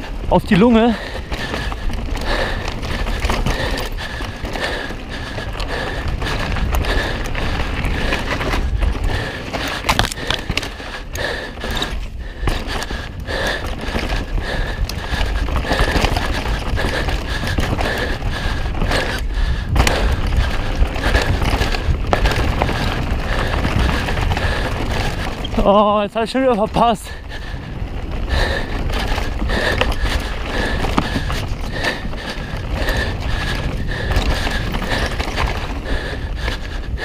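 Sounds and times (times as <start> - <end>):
bike rattling over bumps: 0.0 - 37.0
bike tyres rolling on dirt: 0.0 - 37.0.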